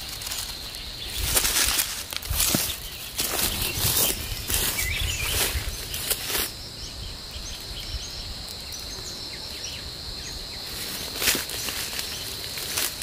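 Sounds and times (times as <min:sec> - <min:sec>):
insects buzzing: 0:00.0 - 0:13.0
leaves and twigs rustling: 0:00.0 - 0:13.0.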